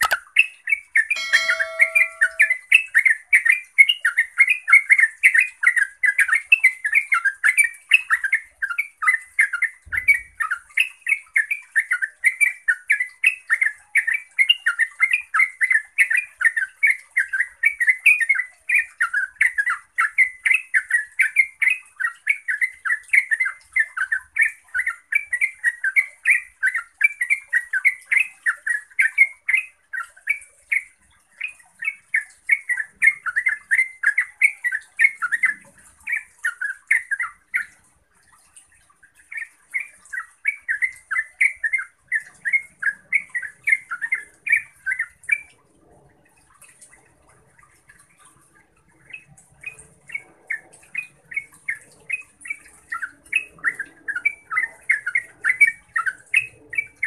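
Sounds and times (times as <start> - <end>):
bulbul singing bubbly notes: 0.0 - 0.2, 1.2 - 2.6.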